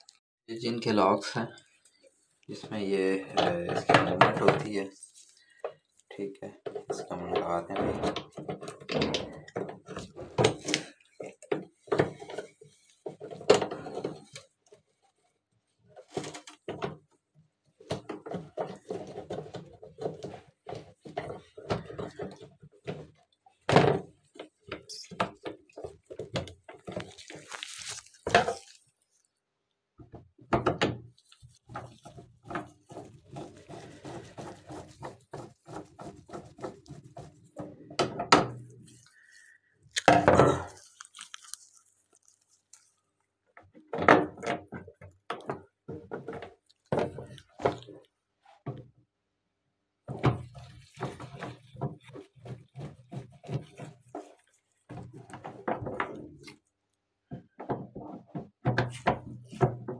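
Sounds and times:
plastic parts clicking and scraping: 0:01.8 - 0:15.3, 0:15.9 - 0:29.3, 0:30.0 - 0:48.9.

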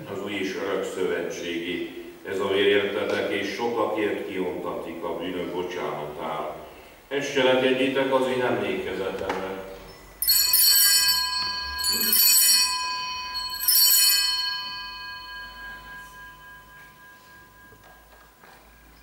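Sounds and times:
altar bells ringing: 0:10.2 - 0:19.0.

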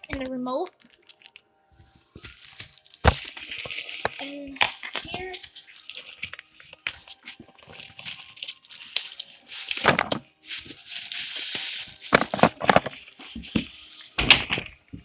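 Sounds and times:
plastic wrapping rustling: 0:00.0 - 0:14.9
foam scraping against cardboard: 0:09.4 - 0:14.2.

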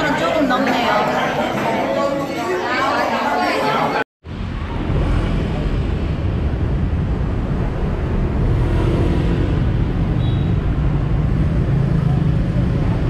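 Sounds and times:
city street traffic: 0:04.2 - 0:13.0.

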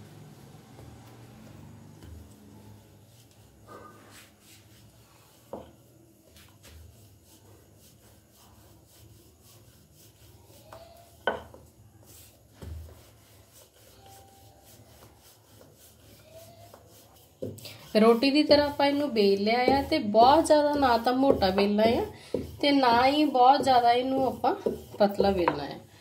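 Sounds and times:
rolling pin rubbing on dough: 0:00.2 - 0:26.0
rolling pin knocking on stone: 0:11.2 - 0:11.7, 0:18.4 - 0:25.8.

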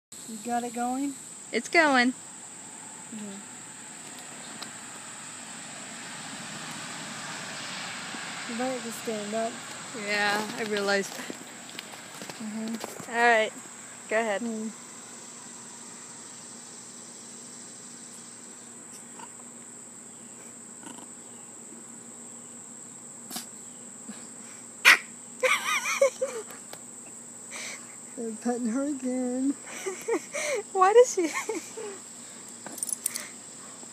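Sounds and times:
crickets chirring: 0:00.2 - 0:33.9
insects trilling: 0:00.2 - 0:33.9
broad hiss: 0:23.2 - 0:25.2.

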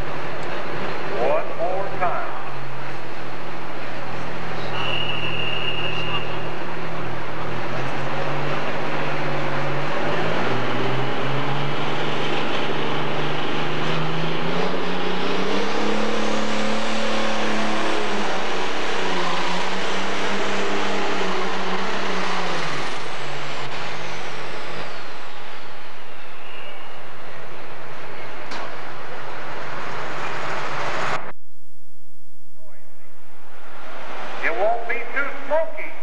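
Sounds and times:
diesel engine revving hard: 0:04.3 - 0:25.3
high whine falling in pitch: 0:30.7 - 0:34.6.

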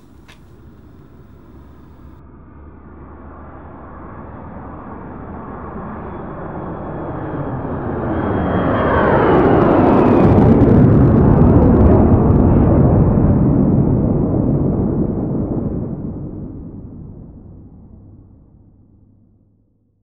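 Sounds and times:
jet aircraft passing overhead: 0:00.0 - 0:11.1.

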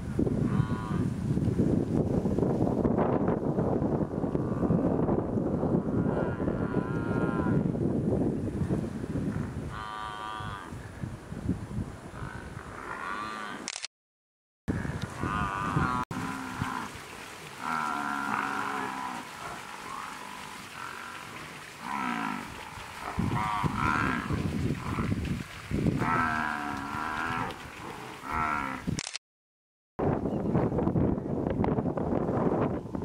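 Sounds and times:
large animals calling: 0:14.7 - 0:25.2.

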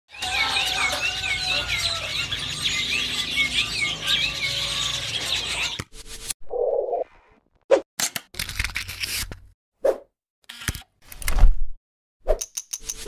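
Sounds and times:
songbirds chirping and whistling: 0:00.1 - 0:05.8.

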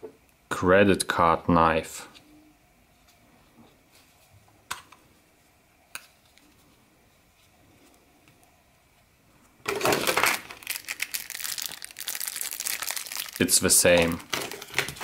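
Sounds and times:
plastic packaging crinkling: 0:09.7 - 0:15.0.

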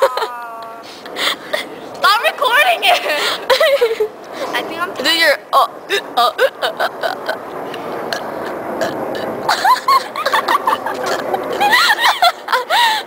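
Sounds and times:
girls laughing and squealing: 0:00.0 - 0:04.3, 0:09.5 - 0:13.0
steady rough noise: 0:00.6 - 0:13.0.

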